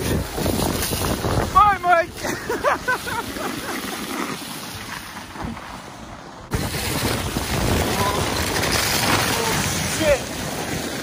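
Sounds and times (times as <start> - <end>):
wind on microphone: 0.0 - 3.2, 6.4 - 11.0
sled hissing on snow: 6.5 - 11.0.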